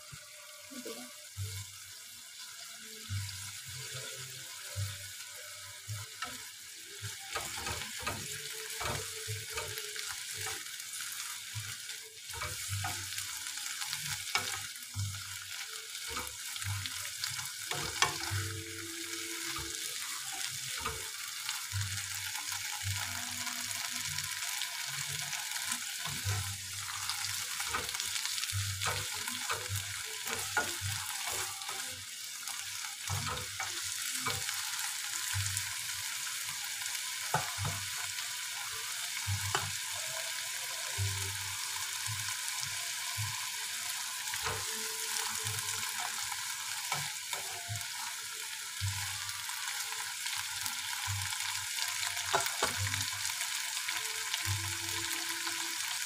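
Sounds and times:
vegetables sizzling in a frying pan: 0.0s - 56.0s
spatula stirring and knocking on pan: 37.1s - 38.1s.

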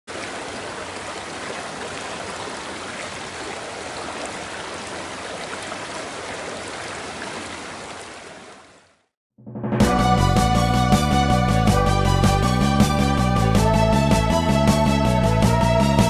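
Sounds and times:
stream rushing over rocks: 0.1s - 8.9s.

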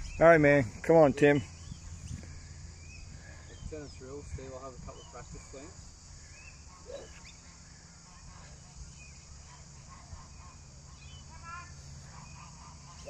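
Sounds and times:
honking bird call: 6.2s - 13.0s.

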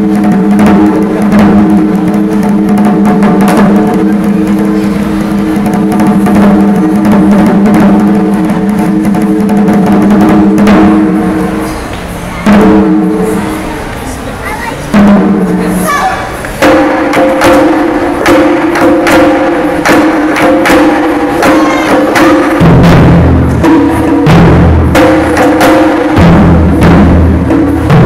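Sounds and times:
heavy drum strikes: 0.0s - 28.0s
taiko drums ensemble: 0.0s - 28.0s.

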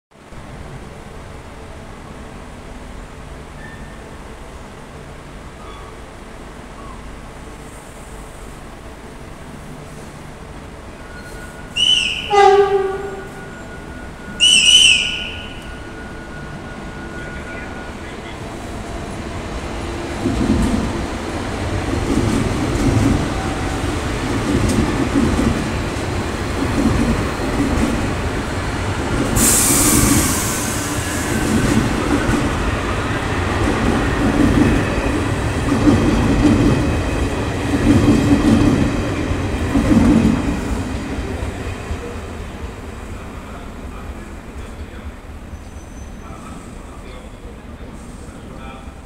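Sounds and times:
sharp hiss: 29.2s - 31.5s.

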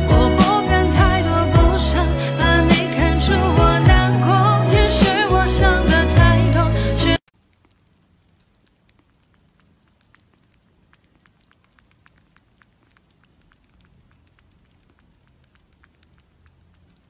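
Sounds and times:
kitten suckling clicks: 7.4s - 17.0s.

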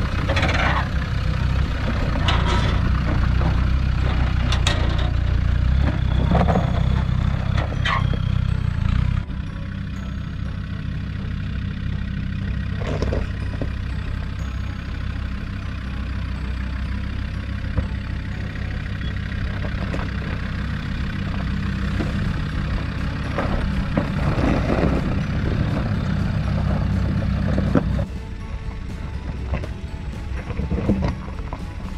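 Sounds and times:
car engine running at low revs: 0.0s - 31.9s
tyres crunching over rocks: 12.7s - 13.9s, 19.2s - 28.1s.

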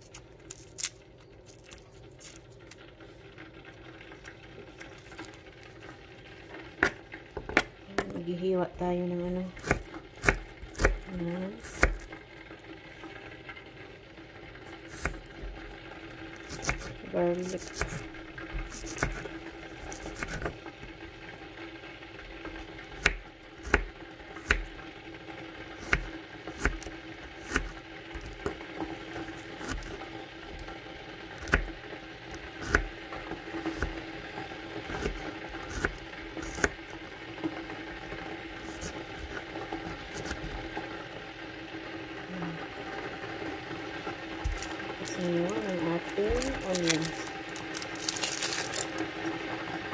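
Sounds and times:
knife chopping on wooden board: 9.6s - 11.0s, 11.7s - 12.1s, 17.6s - 18.0s, 18.6s - 19.3s, 44.4s - 44.7s.

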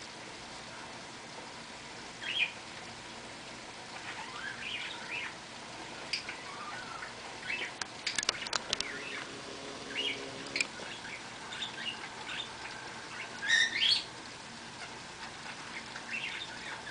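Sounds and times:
rain hiss: 0.0s - 16.9s
small birds chirping: 2.2s - 2.7s, 3.9s - 16.9s
sharp clicks: 7.8s - 9.3s.

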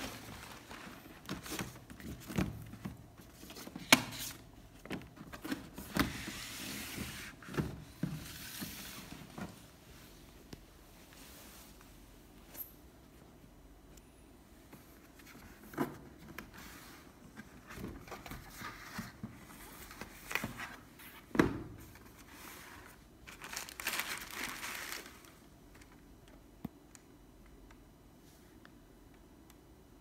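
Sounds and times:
tissue paper crinkling: 0.0s - 1.3s, 23.3s - 25.4s.

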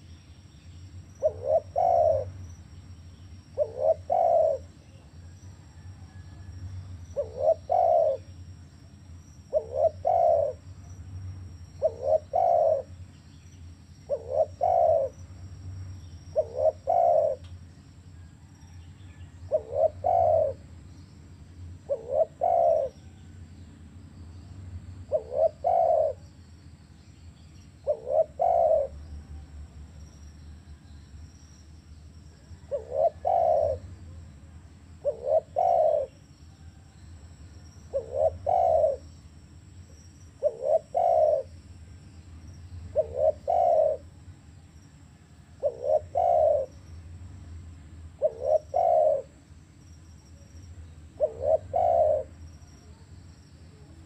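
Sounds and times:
dove cooing: 1.1s - 2.6s, 3.4s - 8.4s, 9.4s - 11.0s, 11.7s - 13.1s, 14.0s - 15.4s, 16.2s - 17.6s, 18.7s - 20.8s, 21.8s - 23.3s, 25.1s - 26.3s, 27.8s - 29.4s, 32.3s - 34.4s, 35.0s - 36.9s, 37.8s - 39.1s, 40.4s - 41.6s, 42.8s - 44.2s, 45.5s - 46.9s, 48.1s - 49.4s, 51.1s - 53.1s.

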